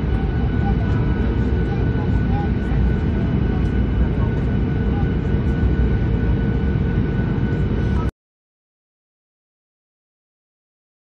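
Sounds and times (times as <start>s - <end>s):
faint steady hums: 0.0s - 8.1s.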